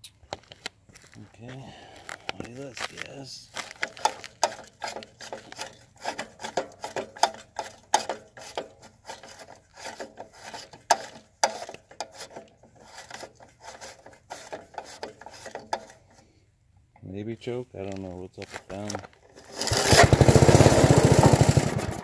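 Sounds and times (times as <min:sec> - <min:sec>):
hands scraping and clicking on metal: 0:02.0 - 0:16.4.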